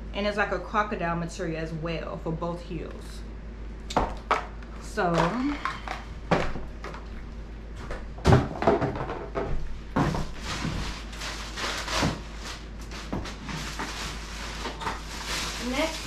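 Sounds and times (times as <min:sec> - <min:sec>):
plastic bag rustling: 0:10.0 - 0:16.0.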